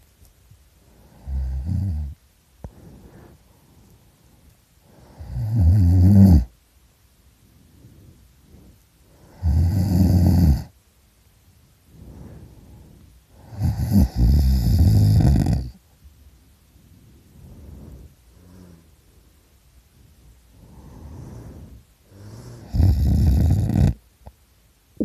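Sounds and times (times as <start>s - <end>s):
quiet breathing: 0.0s - 25.0s
person snoring loudly: 1.2s - 2.2s, 5.1s - 6.5s, 9.3s - 10.7s, 13.4s - 15.8s, 22.1s - 24.0s.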